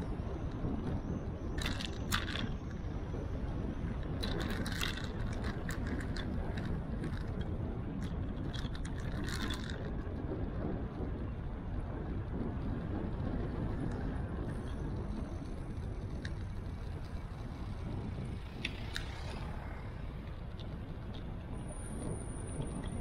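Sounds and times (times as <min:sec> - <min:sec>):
wind and road noise rumble: 0:00.0 - 0:23.0
light clicks and rattles: 0:01.6 - 0:02.8, 0:04.0 - 0:10.2, 0:13.8 - 0:19.5.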